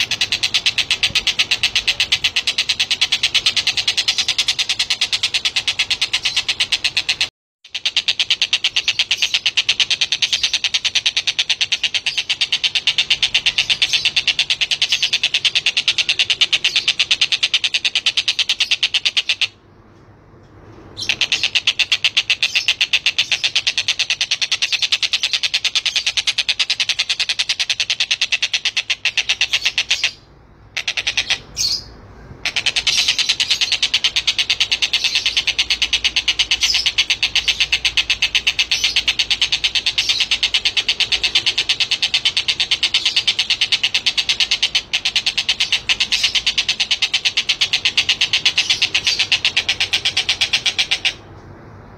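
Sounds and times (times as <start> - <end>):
kingfisher rattling trill: 0.0 - 19.6, 21.0 - 51.3.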